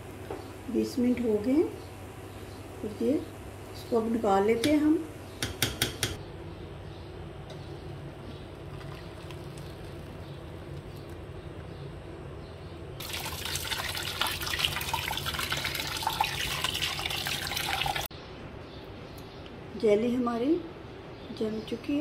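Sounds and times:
water pouring into a metal strainer: 0:13.0 - 0:18.1.

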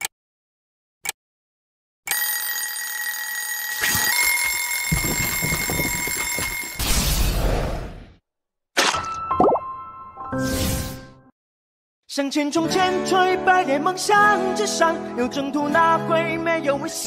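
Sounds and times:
alarm bell ringing: 0:02.1 - 0:07.0.

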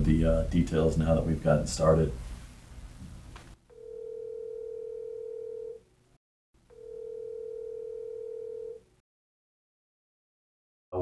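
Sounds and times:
telephone ringback tone: 0:03.7 - 0:05.8, 0:06.7 - 0:08.9.

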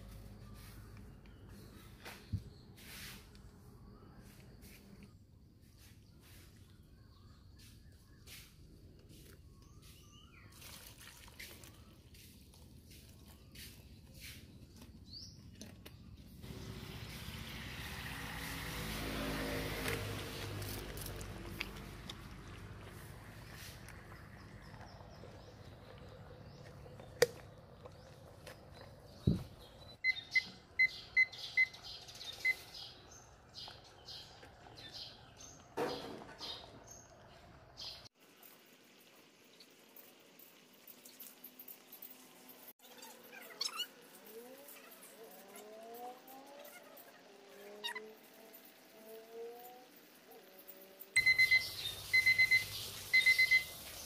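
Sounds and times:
water pouring and splashing: 0:09.6 - 0:14.4, 0:16.4 - 0:26.9, 0:33.7 - 0:42.8, 0:51.2 - 0:54.0
birds chirping: 0:11.6 - 0:38.1, 0:51.2 - 0:54.0
kitchen timer beeps: 0:51.2 - 0:53.8.

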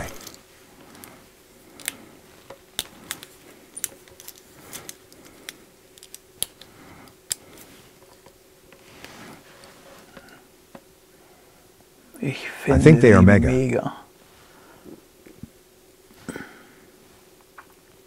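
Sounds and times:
hands rubbing sleeve: 0:08.8 - 0:10.1.

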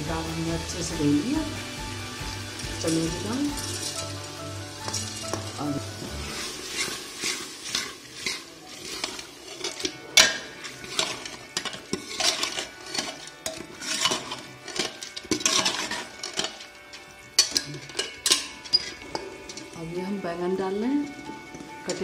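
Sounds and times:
ladle scraping metal pot: 0:02.2 - 0:19.8.

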